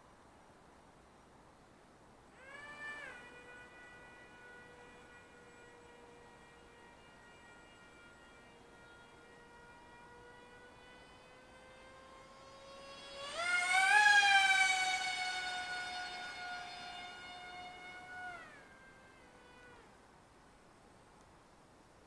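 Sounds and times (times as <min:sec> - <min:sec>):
electric motor and propeller whine: 0:02.3 - 0:20.7.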